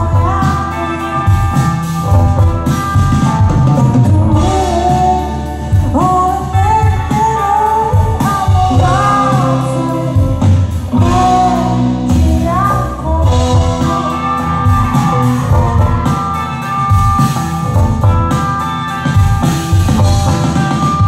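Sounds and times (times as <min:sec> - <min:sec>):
woman singing: 0:00.0 - 0:02.5, 0:03.8 - 0:16.1
indie rock band: 0:00.0 - 0:21.0.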